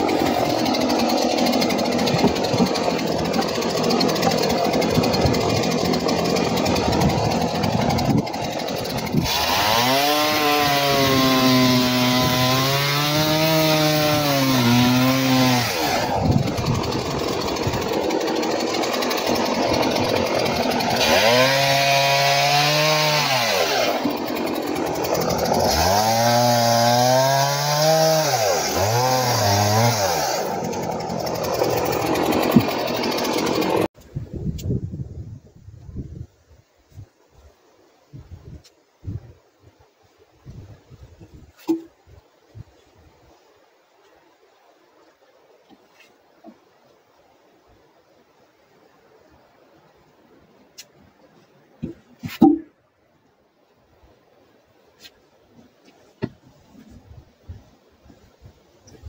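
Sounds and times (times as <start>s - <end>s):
chainsaw cutting logs: 0.0s - 34.0s, 51.8s - 52.7s.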